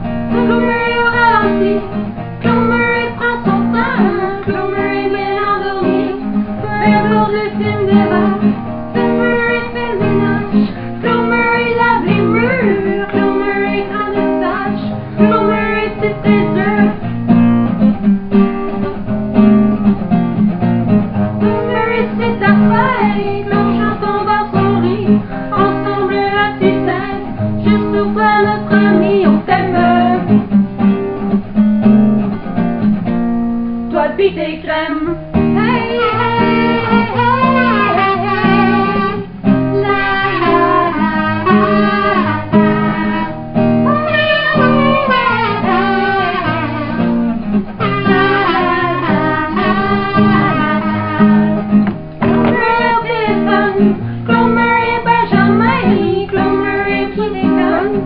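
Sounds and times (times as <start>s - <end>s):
ukulele strumming: 0.0s - 33.8s, 35.2s - 58.0s
acoustic guitar strumming: 0.0s - 58.0s
women singing: 0.3s - 17.1s, 21.4s - 30.4s, 33.9s - 47.0s, 52.2s - 58.0s
buzzing kazoo melody: 35.6s - 56.1s.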